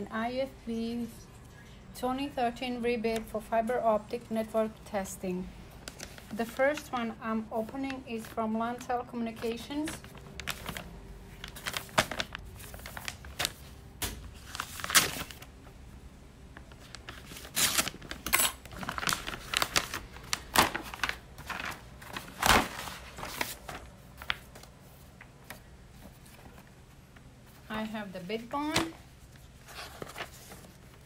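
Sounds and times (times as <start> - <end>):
paper crinkling and rustling: 5.8 - 15.8, 16.5 - 31.0
paper envelope tearing: 14.4 - 15.5, 16.9 - 24.3.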